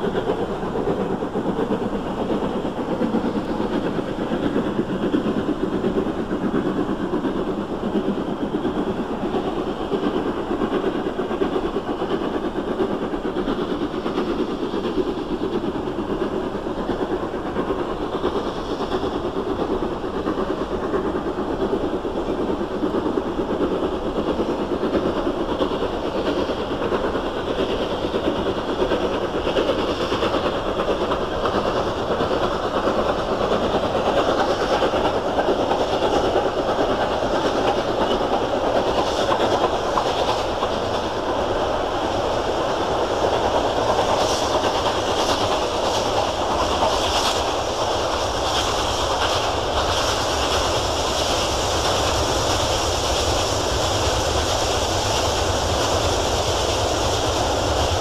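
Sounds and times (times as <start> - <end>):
steam locomotive rumbling: 0.0 - 58.0.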